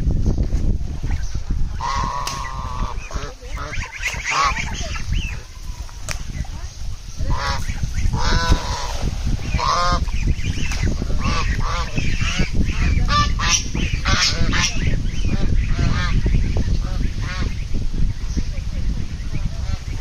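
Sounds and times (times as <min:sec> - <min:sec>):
waterfowl honking: 0:01.1 - 0:06.5, 0:07.2 - 0:17.6.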